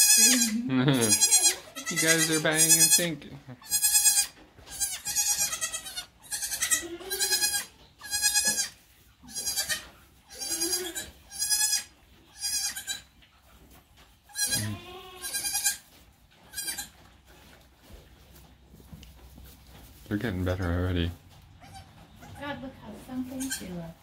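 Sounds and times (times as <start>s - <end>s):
goat kids bleating: 0.0s - 13.2s, 14.2s - 17.2s, 21.5s - 24.0s.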